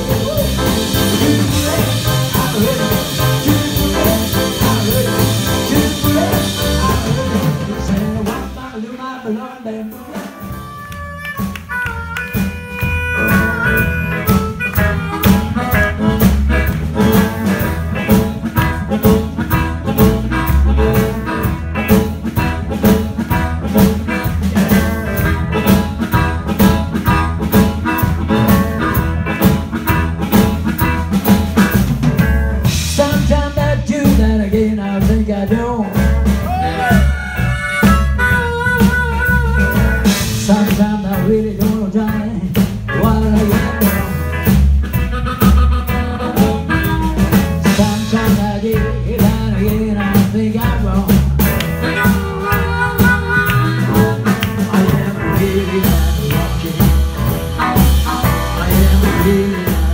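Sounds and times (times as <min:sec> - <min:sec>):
harmonica through microphone: 0:00.0 - 0:08.0, 0:10.1 - 0:31.7, 0:36.4 - 0:40.7, 0:43.1 - 0:50.0, 0:51.5 - 0:59.9
drum kit steady beat: 0:00.0 - 0:08.6, 0:09.9 - 0:59.9
electric guitar: 0:00.0 - 0:08.7, 0:10.2 - 0:59.9
upright bass: 0:00.0 - 0:59.9.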